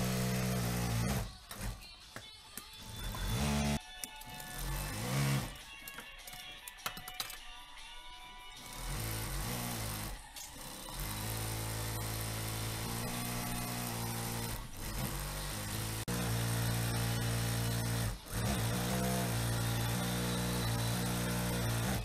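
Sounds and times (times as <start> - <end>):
industrial sewing machine running: 17.8 - 22.0.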